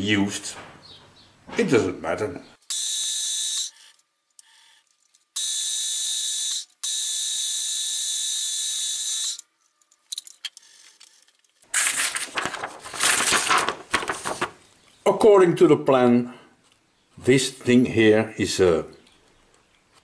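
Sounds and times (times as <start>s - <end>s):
drill spindle whirring: 2.6s - 9.5s
paper rustling: 10.9s - 14.8s.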